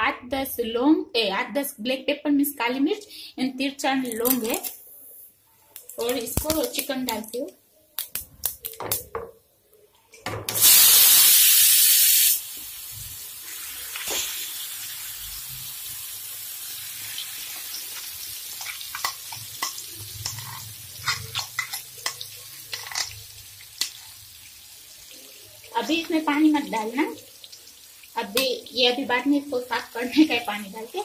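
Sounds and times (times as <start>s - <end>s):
chicken sizzling in hot oil: 10.6s - 31.0s
spoon scraping and tapping: 18.6s - 23.2s.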